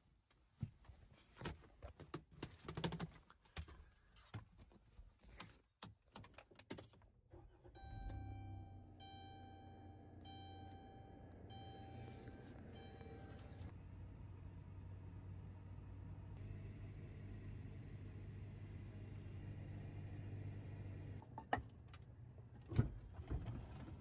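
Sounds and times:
dashboard chime electronic tones: 0:07.8 - 0:13.7.

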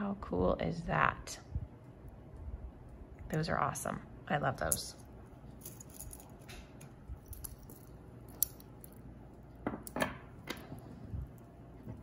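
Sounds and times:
metal necklace clinking: 0:04.6 - 0:10.0.

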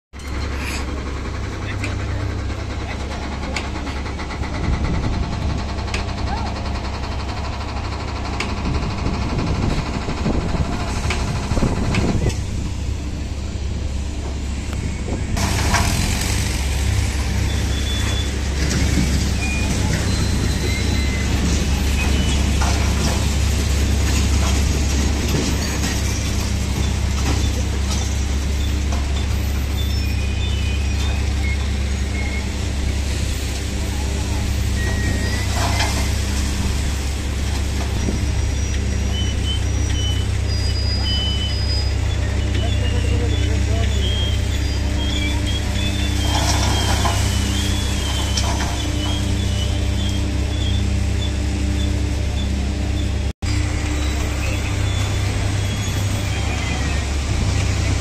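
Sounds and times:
hydraulic machinery humming and hissing: 0:00.2 - 0:58.0.

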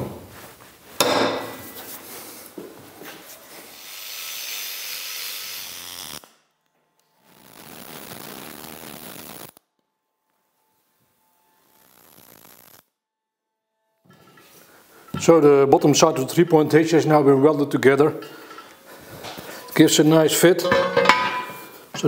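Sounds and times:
rasping hissing noise: 0:03.3 - 0:06.2.

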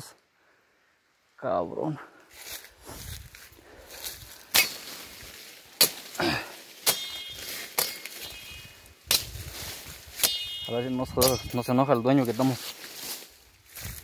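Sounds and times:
rustling leaves: 0:02.1 - 0:14.0
machete strikes: 0:04.5 - 0:05.0, 0:05.8 - 0:06.2, 0:06.8 - 0:09.4, 0:10.1 - 0:11.6
brief metallic ring: 0:10.2 - 0:11.6.

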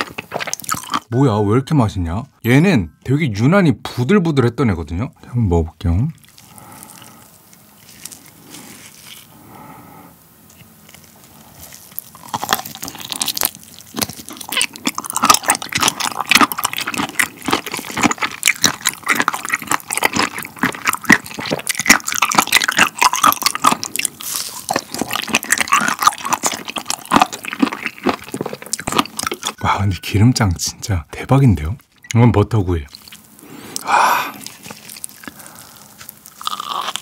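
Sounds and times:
close wet crunchy chewing: 0:00.0 - 0:01.1, 0:06.0 - 0:09.8, 0:10.4 - 0:29.6, 0:32.9 - 0:37.0.

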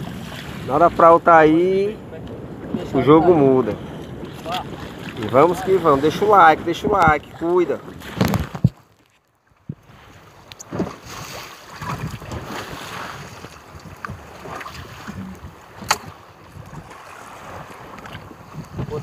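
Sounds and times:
water sloshing and splashing: 0:00.0 - 0:01.2, 0:02.1 - 0:19.0
wind on microphone: 0:00.0 - 0:08.8, 0:09.6 - 0:19.0.

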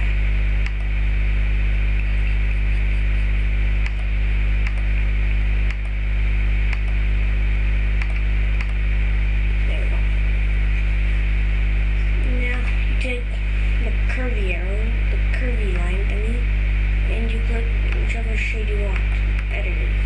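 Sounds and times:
electrical mains hum: 0:00.0 - 0:20.0
mouse clicks: 0:00.6 - 0:00.9, 0:03.8 - 0:04.9, 0:05.7 - 0:06.0, 0:06.7 - 0:07.0, 0:08.0 - 0:08.8.

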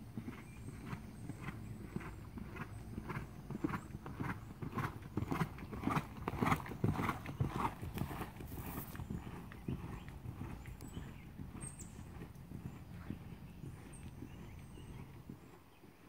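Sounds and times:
horse hoofbeats on sand: 0:00.0 - 0:16.0.

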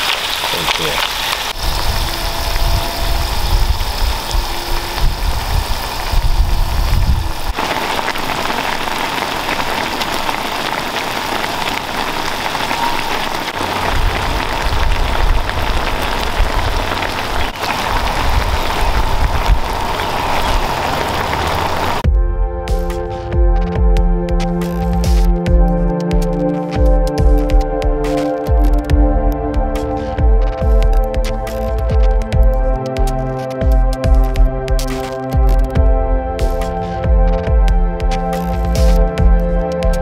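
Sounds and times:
sauce bubbling and sizzling: 0:00.0 - 0:22.0
low rumble: 0:01.6 - 0:07.7, 0:13.5 - 0:25.8.

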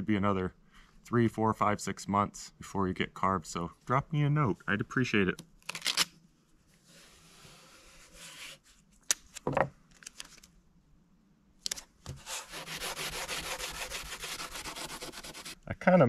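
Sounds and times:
rubbing over wood: 0:12.1 - 0:15.6.

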